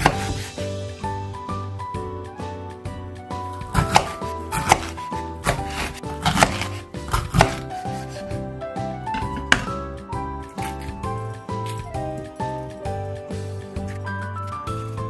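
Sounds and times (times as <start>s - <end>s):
background music: 0.0s - 15.0s
knife knocking on wooden board: 9.1s - 9.8s.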